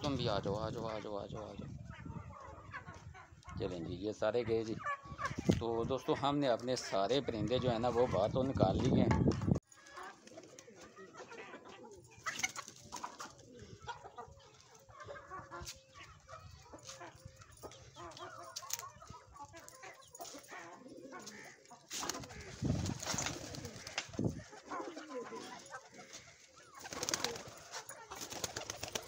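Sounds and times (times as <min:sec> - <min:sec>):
chickens clucking: 0:00.0 - 0:29.0
pigeons cooing: 0:09.8 - 0:29.0.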